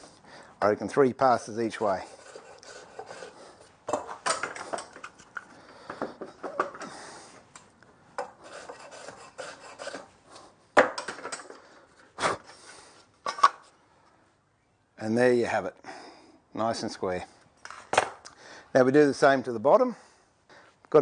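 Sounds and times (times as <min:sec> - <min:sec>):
hand plane shaving wood: 0:02.1 - 0:03.4, 0:08.4 - 0:10.1.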